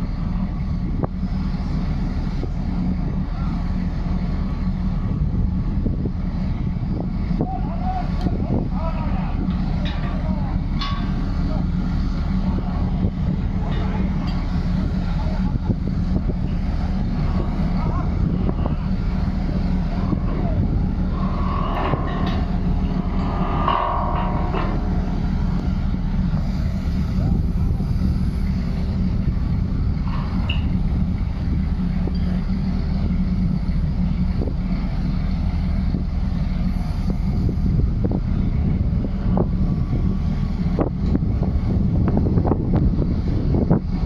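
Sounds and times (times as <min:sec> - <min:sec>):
low engine rumble: 0:00.0 - 0:44.0
wind buffeting microphone: 0:00.0 - 0:44.0.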